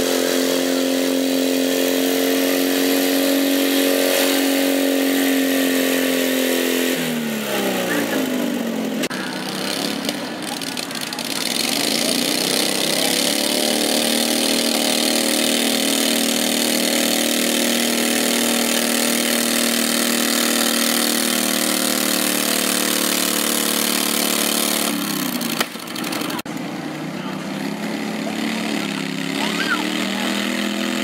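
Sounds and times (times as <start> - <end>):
tractor engine running hard: 0.0 - 31.0
sharp snap: 25.6 - 25.8.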